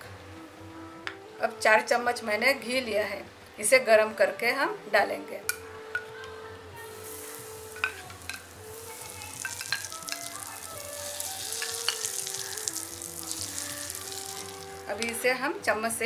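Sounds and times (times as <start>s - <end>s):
soft background music: 0.0s - 16.0s
hot fat sizzling on flour: 6.8s - 15.3s.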